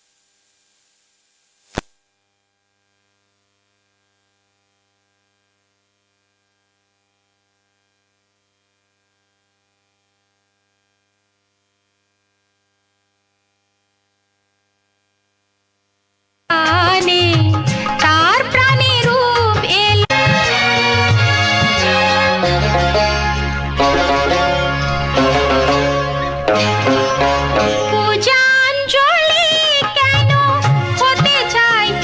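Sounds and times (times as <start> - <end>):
faint hiss: 0.0 - 2.0
sharp click: 1.7 - 2.0.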